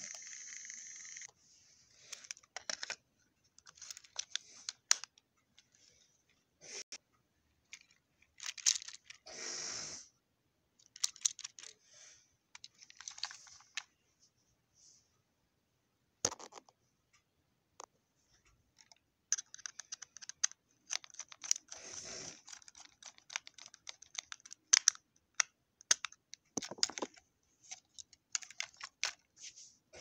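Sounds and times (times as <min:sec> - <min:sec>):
plastic toy clicking and tapping: 0:18.8 - 0:21.8, 0:22.4 - 0:27.2.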